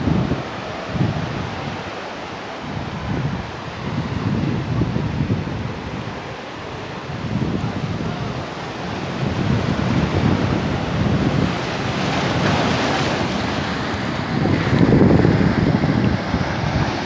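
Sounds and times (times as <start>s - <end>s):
wind buffeting microphone: 0.0s - 2.0s, 2.6s - 17.0s
surf breaking over boulders: 7.3s - 17.0s.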